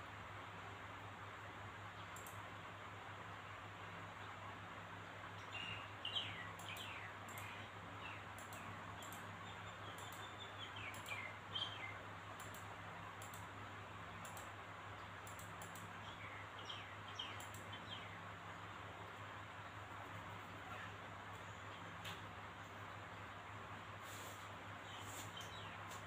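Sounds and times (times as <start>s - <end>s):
low hum and hiss: 0.0s - 26.0s
faint bird chirps: 5.3s - 13.5s, 14.1s - 19.2s, 24.0s - 26.0s.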